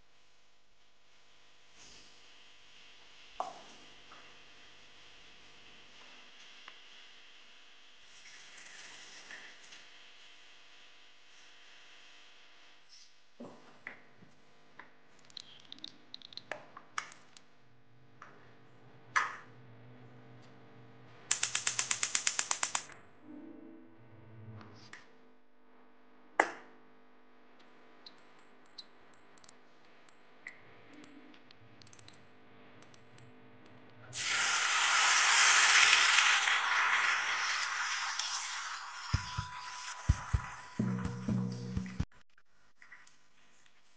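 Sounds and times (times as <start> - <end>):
paste sizzling in hot pan: 34.2 - 40.8.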